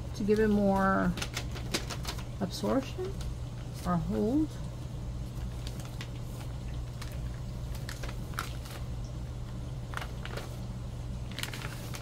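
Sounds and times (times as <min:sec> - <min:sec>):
steady low hum: 0:00.0 - 0:12.0
paper pages rustling and crackling: 0:00.2 - 0:02.4, 0:05.4 - 0:08.9, 0:09.8 - 0:12.0.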